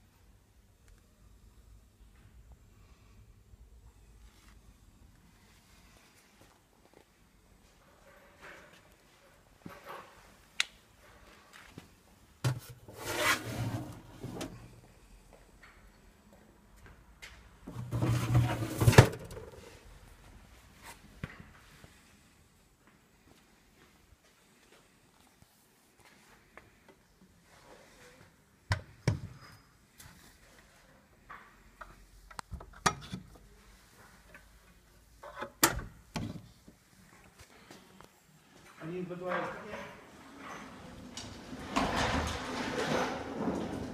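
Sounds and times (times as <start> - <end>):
metal drawer scraping open: 12.5 - 14.7, 17.7 - 19.6, 40.3 - 43.9.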